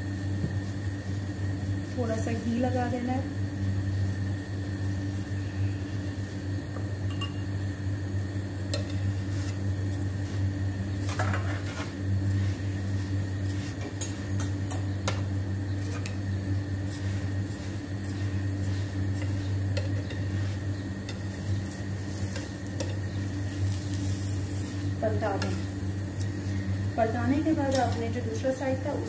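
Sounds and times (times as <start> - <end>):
faint sizzle: 0.0 - 29.0
steady low hum: 0.0 - 29.0
metal tongs scraping a pan: 11.0 - 12.0, 27.5 - 28.2.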